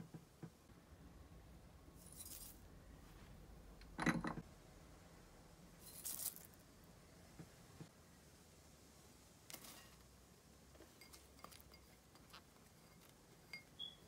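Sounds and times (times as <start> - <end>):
seeds rattling into a bowl: 2.0 - 2.6, 5.8 - 6.6
glassy clink: 12.8 - 14.0.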